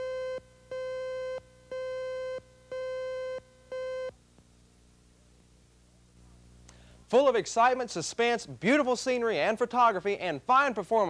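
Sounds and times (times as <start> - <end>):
countdown beeps: 0.0 - 4.1
faint low hum: 0.0 - 11.0.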